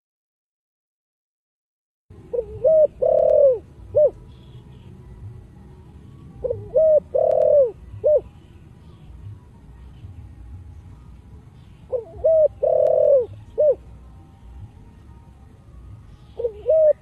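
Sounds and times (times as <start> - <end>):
dove cooing: 2.3 - 4.9, 6.3 - 8.6, 11.6 - 13.9, 16.2 - 17.0.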